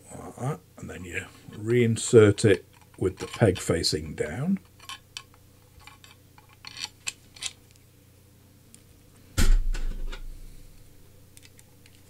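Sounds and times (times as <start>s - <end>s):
heavy dull thump: 9.4s - 10.5s.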